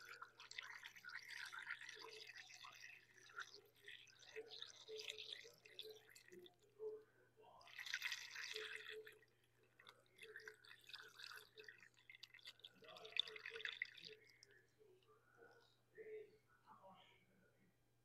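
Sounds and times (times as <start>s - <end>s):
liquid pouring into radiator: 0.0s - 6.7s, 7.5s - 14.5s.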